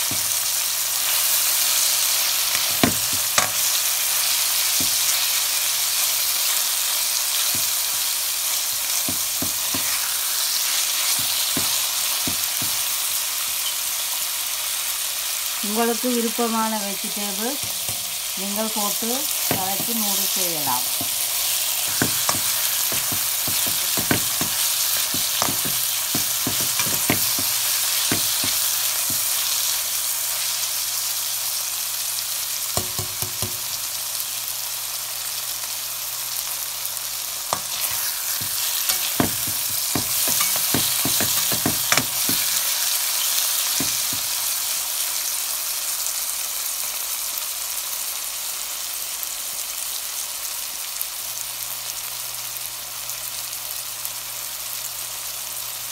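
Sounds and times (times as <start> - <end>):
vegetables sizzling in hot oil: 0.0 - 55.9
spatula scraping and knocking pan: 7.4 - 8.0, 8.7 - 13.0, 17.6 - 29.6, 37.5 - 44.5.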